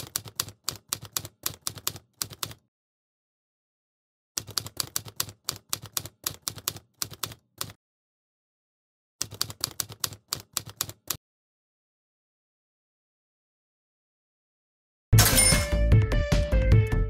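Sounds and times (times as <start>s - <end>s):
rapid keyboard key clicks: 0.0s - 2.6s, 4.4s - 7.8s, 9.2s - 11.2s.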